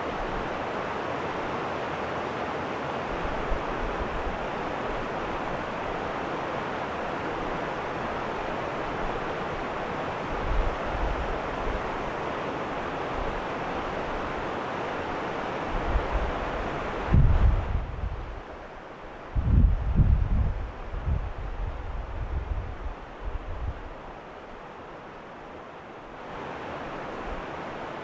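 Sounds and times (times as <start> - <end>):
stream rushing over rocks: 0.0 - 19.4, 20.6 - 28.0
wind buffeting microphone: 17.0 - 18.4, 19.3 - 24.0.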